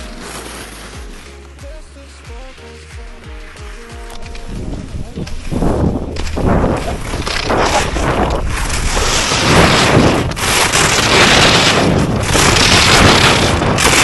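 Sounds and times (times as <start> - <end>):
skis scraping on hard snow: 0.0 - 1.6, 3.1 - 14.0
wind rushing over microphone: 4.4 - 14.0.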